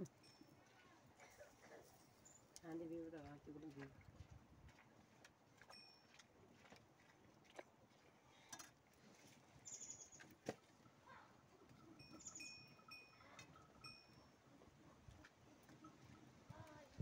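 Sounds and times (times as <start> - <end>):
faint bird chirps: 9.6 - 10.3, 11.9 - 13.4.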